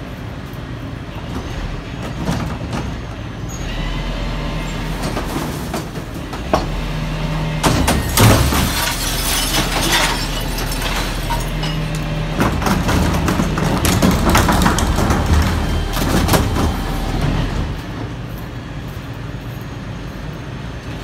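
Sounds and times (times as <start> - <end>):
garbage truck engine hum: 0.0 - 21.0
falling recyclables: 4.6 - 18.6
bin clattering and knocking: 7.6 - 17.5
hydraulic tone: 14.3 - 18.0.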